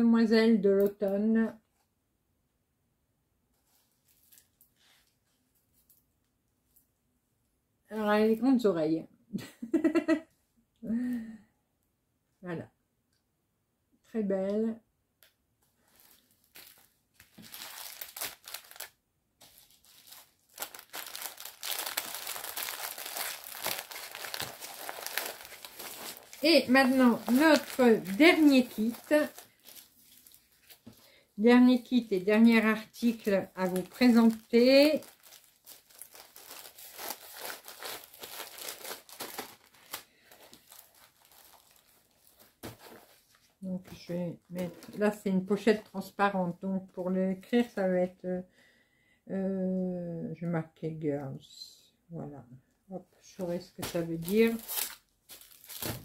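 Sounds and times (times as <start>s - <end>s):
plastic packaging crinkling: 15.8s - 45.9s, 53.5s - 56.0s.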